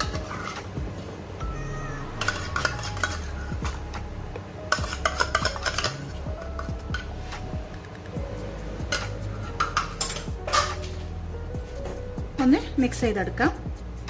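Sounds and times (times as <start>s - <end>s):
metal spoon scraping a tin: 0.0s - 0.7s, 2.2s - 4.0s, 4.7s - 7.1s, 8.9s - 11.0s.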